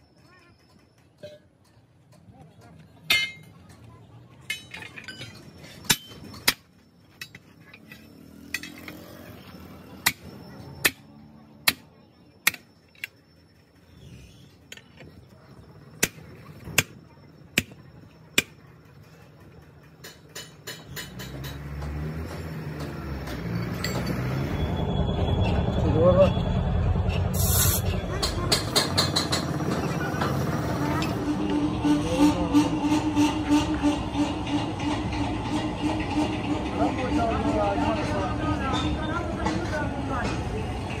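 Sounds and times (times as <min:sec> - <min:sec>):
vehicle engine: 0:01.6 - 0:41.0
hammer striking steel: 0:03.0 - 0:03.7, 0:04.5 - 0:08.9, 0:20.0 - 0:24.2, 0:27.4 - 0:30.4.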